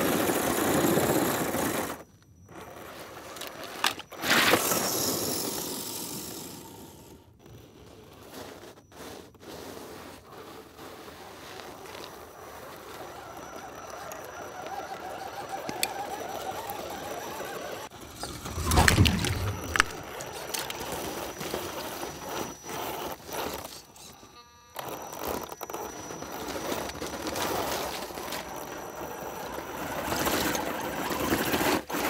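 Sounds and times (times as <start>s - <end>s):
ice crackling: 10.4s - 24.1s
low thump with falling whoosh: 18.0s - 20.2s
water splashing: 18.1s - 20.6s.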